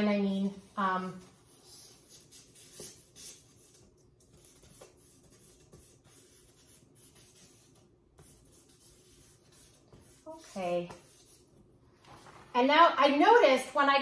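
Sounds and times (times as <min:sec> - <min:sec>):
charcoal scratching on paper: 0:00.5 - 0:11.5.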